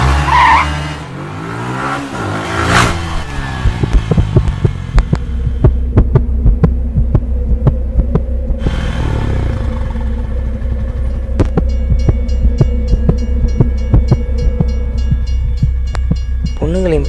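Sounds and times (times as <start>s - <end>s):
heartbeat sound effect: 2.8s - 8.8s, 11.2s - 16.6s
steady low drone: 2.9s - 17.0s
sweeping engine-like pass: 6.9s - 16.9s.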